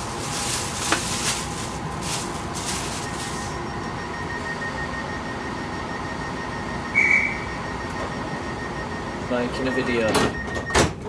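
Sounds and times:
train interior low rumble: 0.0s - 5.9s.

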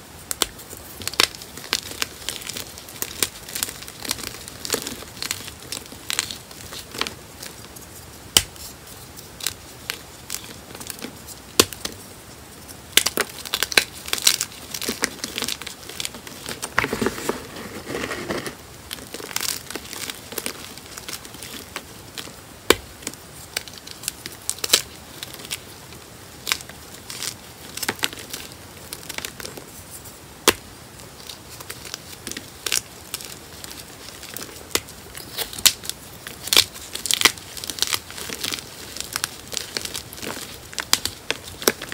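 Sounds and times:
chalk pieces snapping: 8.3s - 8.7s, 12.9s - 25.6s
chalk crunching by hand: 13.0s - 22.3s.

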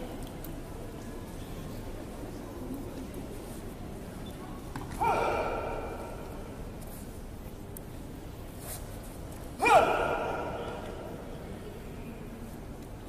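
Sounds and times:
low hall background: 0.0s - 13.0s
martial arts shout: 5.0s - 6.5s, 9.6s - 11.2s.

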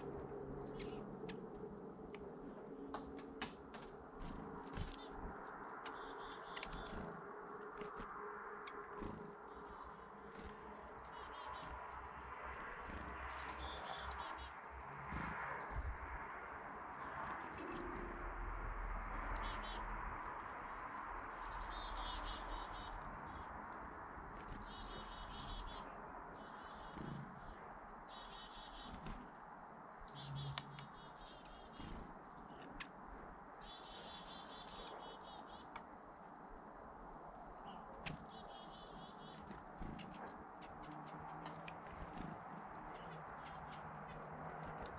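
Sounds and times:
songbirds chirping: 0.0s - 44.9s.

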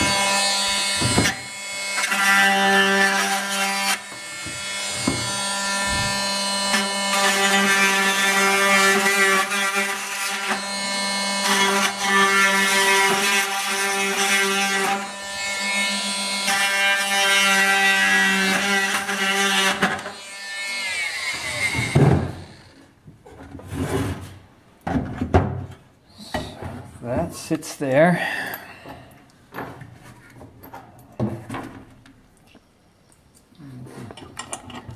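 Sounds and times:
oscillating multi-tool buzzing: 0.0s - 22.8s
knocks and handling sounds: 4.1s - 6.2s, 21.8s - 27.0s, 28.8s - 34.9s.

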